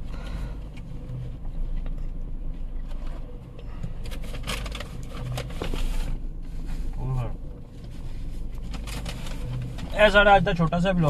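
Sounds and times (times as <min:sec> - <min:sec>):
car idling hum: 0:00.0 - 0:11.0.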